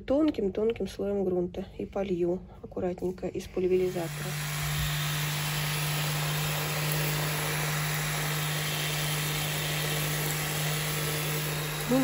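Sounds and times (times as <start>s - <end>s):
mister motor hum: 3.8s - 12.0s.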